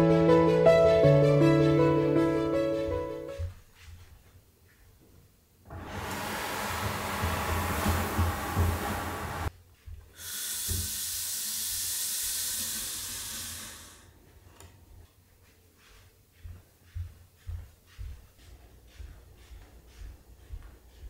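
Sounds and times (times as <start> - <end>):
soft footsteps on floor: 2.9 - 5.4, 6.8 - 10.2, 14.2 - 21.0
steady hiss: 10.1 - 14.2.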